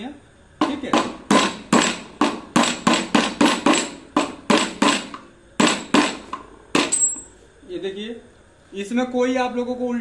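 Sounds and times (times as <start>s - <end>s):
hammer knocking on metal: 0.6s - 6.2s.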